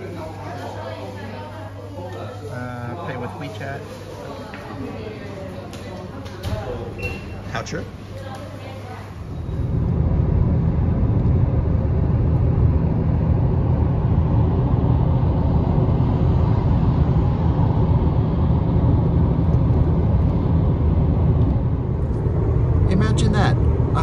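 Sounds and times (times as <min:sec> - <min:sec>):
car road and wind noise: 0:09.4 - 0:24.0.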